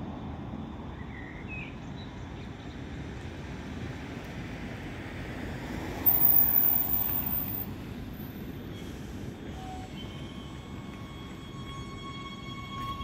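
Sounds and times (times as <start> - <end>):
train rumble: 0.0 - 13.0
faint steady tones: 6.1 - 7.8.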